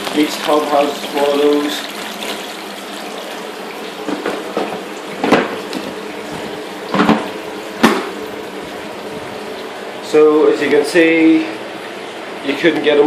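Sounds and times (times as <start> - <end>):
water pouring and splashing: 0.0 - 9.9.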